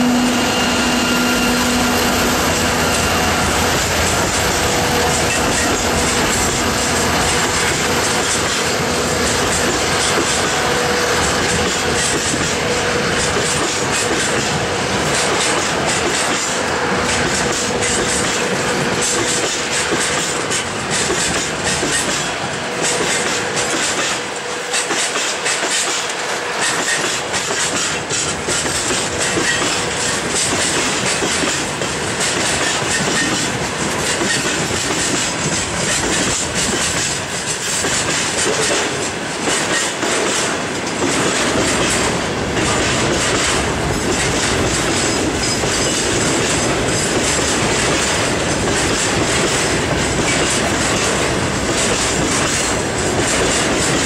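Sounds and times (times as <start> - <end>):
train wheels clacking over rail joints: 1.0 - 54.0.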